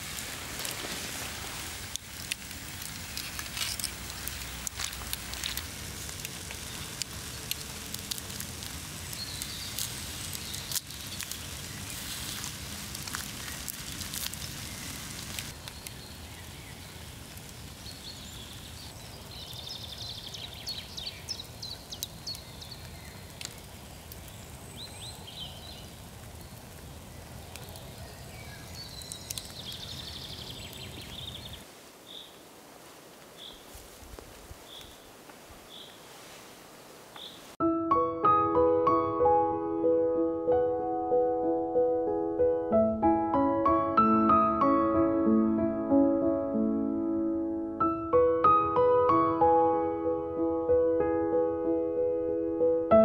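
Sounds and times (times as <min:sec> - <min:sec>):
log fire crackling: 0:00.0 - 0:37.6.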